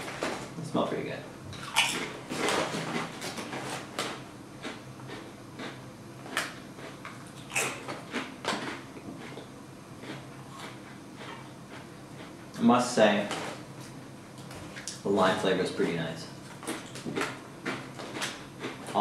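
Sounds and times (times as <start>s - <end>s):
foil chip bag rustling: 1.8s - 4.2s.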